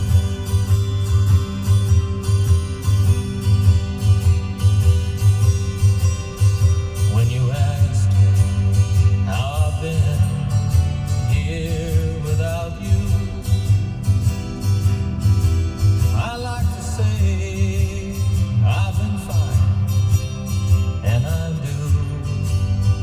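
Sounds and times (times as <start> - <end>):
heavy pulsing bass line: 0.0 - 23.0
singing voice: 6.9 - 14.3, 16.0 - 23.0.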